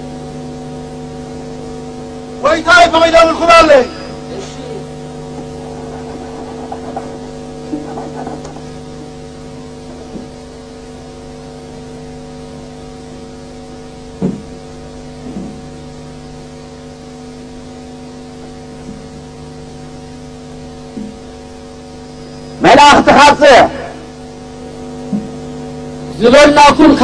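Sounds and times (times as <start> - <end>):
electrical hum and hiss: 0.0 - 27.0
thumps: 5.3 - 8.8, 14.2 - 14.5.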